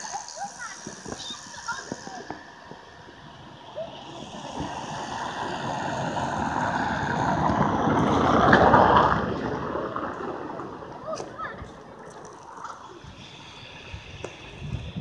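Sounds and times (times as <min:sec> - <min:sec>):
vehicle driving past: 0:03.3 - 0:11.0.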